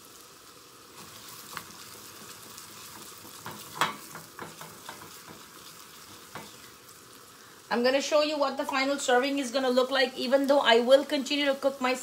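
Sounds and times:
onions sizzling in a pan: 0.0 - 12.0
spatula scraping and tapping pan: 1.2 - 6.8, 8.6 - 9.1.

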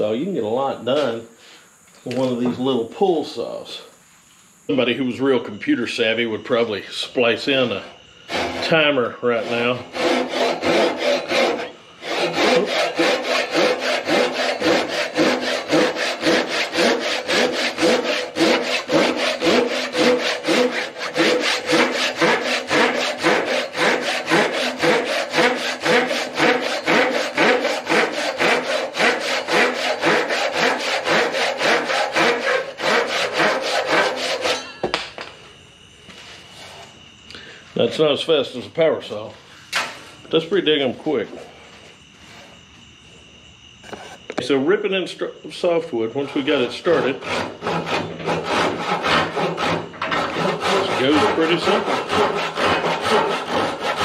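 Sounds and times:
hand saw cutting wood: 0.8 - 1.2, 7.6 - 34.8, 46.4 - 54.0.

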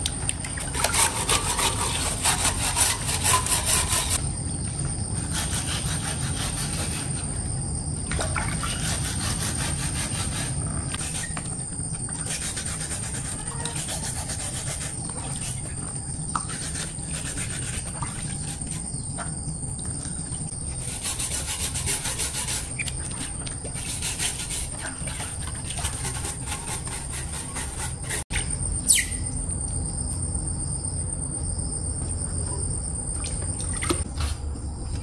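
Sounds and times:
high insect drone: 0.6 - 35.0
hands scrubbing bicycle tyre: 0.7 - 4.2, 12.2 - 15.8, 16.4 - 18.9, 20.8 - 28.2.

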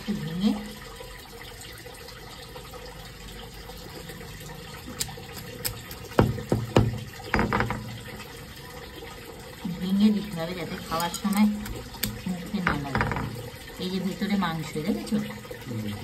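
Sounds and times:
running water: 0.0 - 16.0
stone roller knocking on crab claws: 5.6 - 8.0, 12.0 - 13.5.

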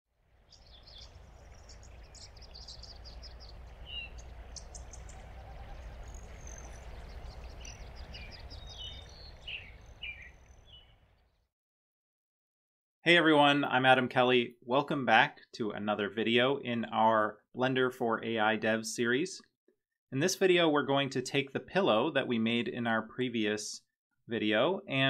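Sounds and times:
steady low rumble: 0.4 - 10.1
birds chirping and calling: 0.5 - 11.1.

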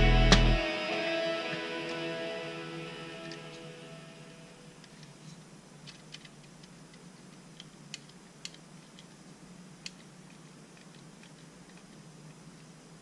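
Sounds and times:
low steady hum: 0.0 - 13.0
small clicks handling toy car: 4.8 - 9.2, 9.8 - 12.8.

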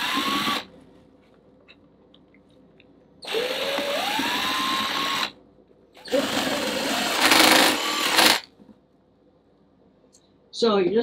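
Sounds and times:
cordless drill whining: 0.0 - 0.7, 3.2 - 5.3, 6.0 - 8.5.

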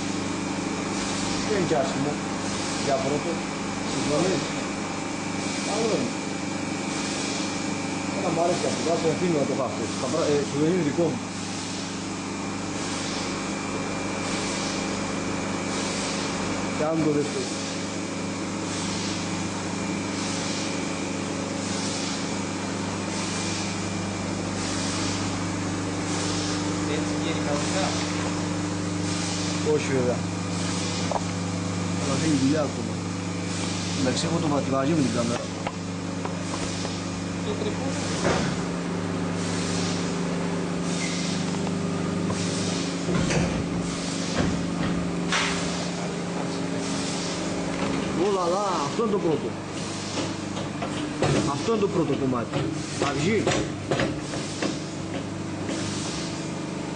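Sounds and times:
hydraulic machine hum: 0.0 - 56.9
pulsing hiss: 39.3 - 40.2
machine knocks: 50.2 - 55.8.

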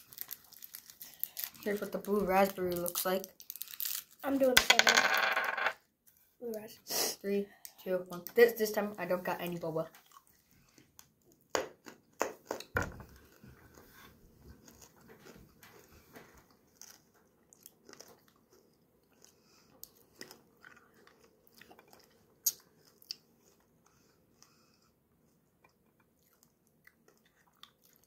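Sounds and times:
person crunching hard candy: 0.0 - 1.9, 2.7 - 4.2
person chewing: 9.9 - 24.6, 25.6 - 28.0.

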